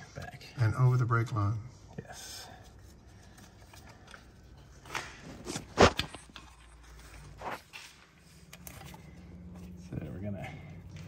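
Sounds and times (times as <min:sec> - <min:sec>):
knocks and scuffs from handling: 0:04.8 - 0:08.2.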